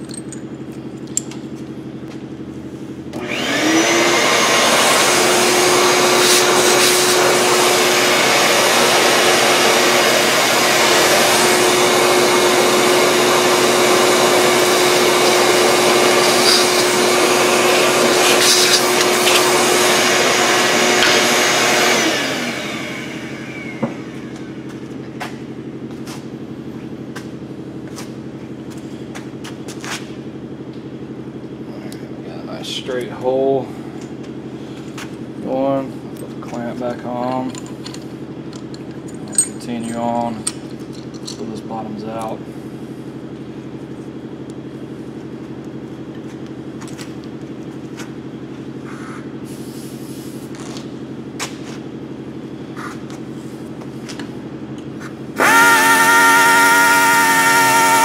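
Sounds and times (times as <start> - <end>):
angle drill drilling: 3.1 - 24.5, 55.4 - 58.0.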